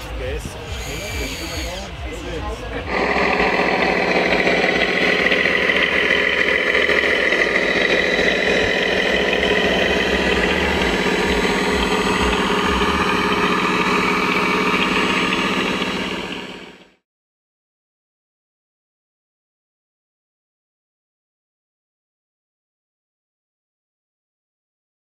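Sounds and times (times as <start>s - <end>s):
engine idling: 0.6s - 17.0s.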